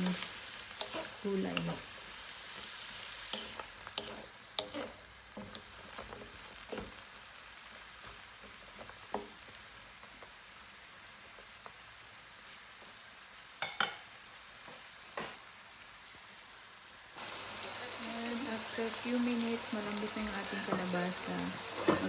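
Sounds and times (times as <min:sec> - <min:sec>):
food sizzling in a wok: 0:00.0 - 0:22.0
wooden spoon knocking wok: 0:21.7 - 0:22.0.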